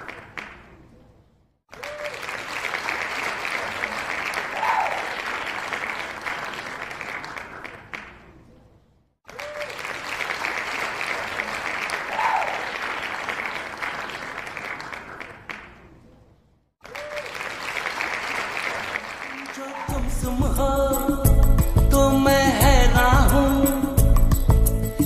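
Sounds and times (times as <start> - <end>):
crowd applause and cheering: 1.7 - 8.0, 9.3 - 15.5, 16.8 - 20.3.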